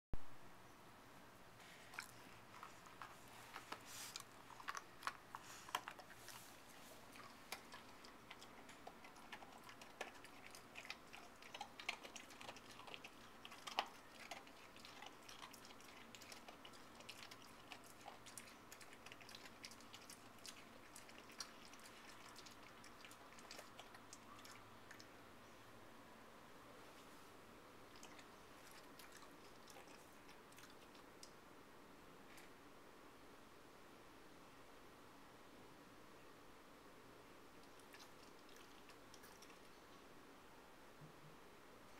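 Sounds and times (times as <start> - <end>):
dog chewing a biscuit: 1.9 - 25.0, 27.9 - 31.1.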